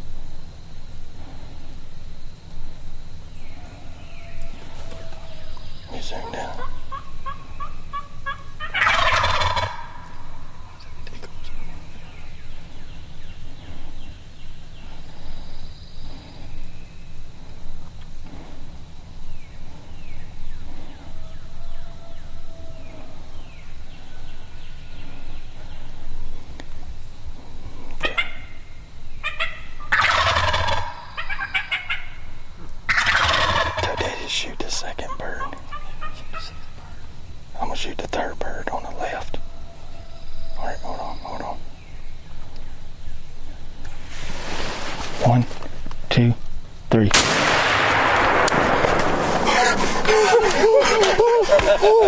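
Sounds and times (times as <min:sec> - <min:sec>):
faint low rumble: 0:00.0 - 0:29.9
faint turkey calls: 0:03.3 - 0:43.8
turkey gobbling: 0:03.6 - 0:12.5, 0:28.0 - 0:37.8, 0:48.5 - 0:52.0
turkey yelps: 0:06.1 - 0:10.5, 0:28.0 - 0:32.3, 0:32.9 - 0:34.1, 0:35.0 - 0:37.0, 0:49.5 - 0:52.0.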